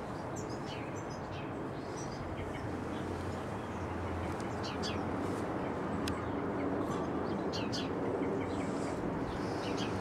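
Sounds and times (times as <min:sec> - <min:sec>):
small birds chirping: 0:00.0 - 0:10.0.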